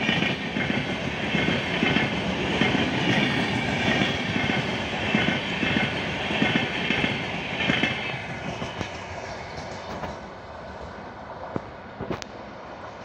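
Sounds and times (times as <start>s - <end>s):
train wheels clattering: 0.0s - 10.2s.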